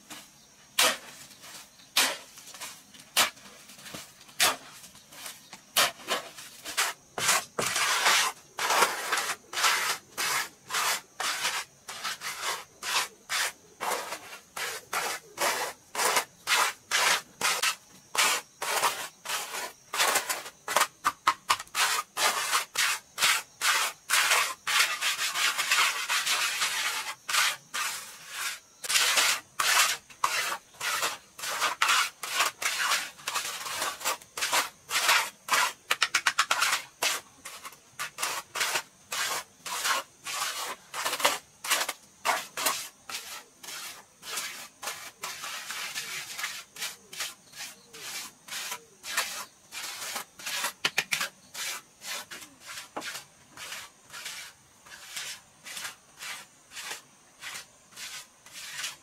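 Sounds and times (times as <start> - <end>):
trowel scraping wet cement: 0.1 - 59.0.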